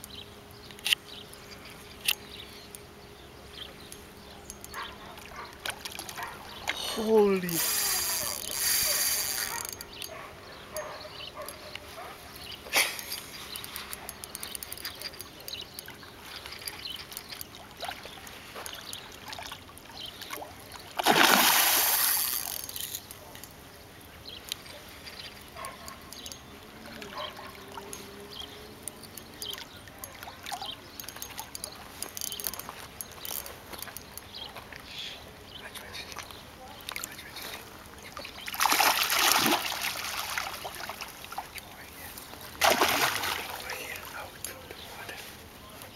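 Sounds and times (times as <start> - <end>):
small water splashes: 15.5 - 22.8, 26.6 - 32.7, 36.0 - 41.8, 42.5 - 44.2
fish splashing in water: 17.5 - 22.6, 38.2 - 41.5, 42.5 - 44.1.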